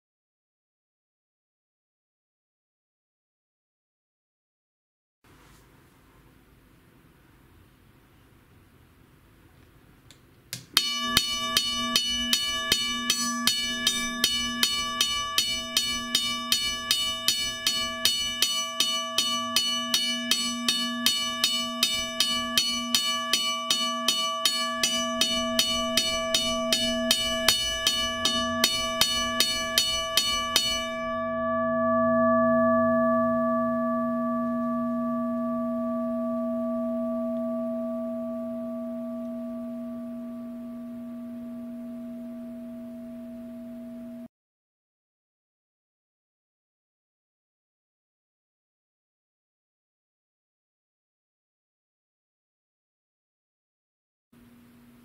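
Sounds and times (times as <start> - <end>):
railroad crossing bell ringing: 10.8 - 32.2.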